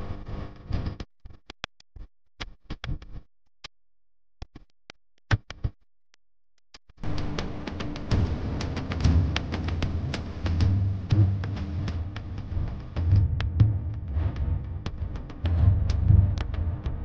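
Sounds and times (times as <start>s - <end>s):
music: 7.0s - 17.0s.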